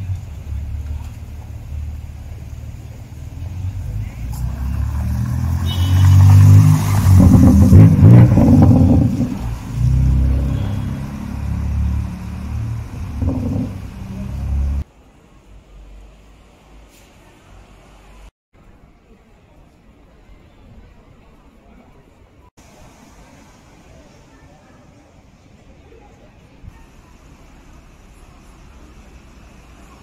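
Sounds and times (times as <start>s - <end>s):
car engine revving: 3.3s - 14.8s.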